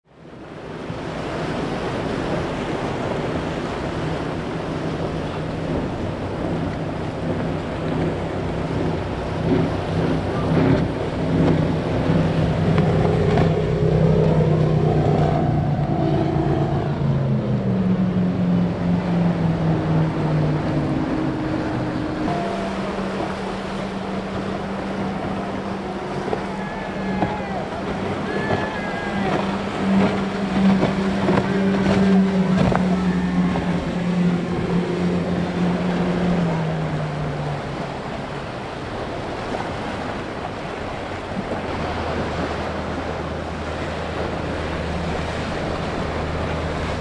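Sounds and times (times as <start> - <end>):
wind and waves rushing: 0.0 - 47.0
speedboat engines droning: 0.1 - 47.0.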